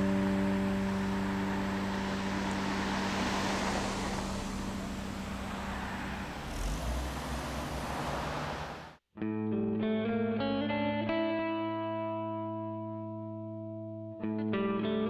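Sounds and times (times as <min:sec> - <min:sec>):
car driving past: 0:00.0 - 0:09.0.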